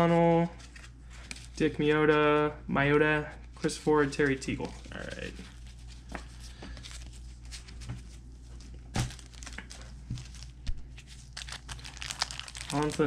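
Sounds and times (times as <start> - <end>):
plastic wrapper crinkling: 3.6 - 13.0
wrapper snapping: 9.0 - 13.0.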